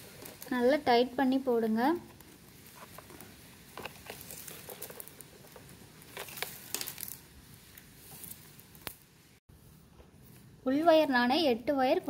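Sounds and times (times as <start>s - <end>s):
plastic strips rustling and clicking: 2.1s - 9.0s.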